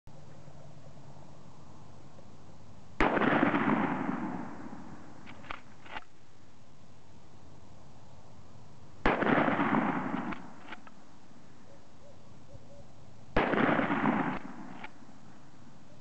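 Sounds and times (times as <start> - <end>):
shotgun blasts echoing: 3.0 - 6.0, 9.0 - 10.8, 13.4 - 15.1.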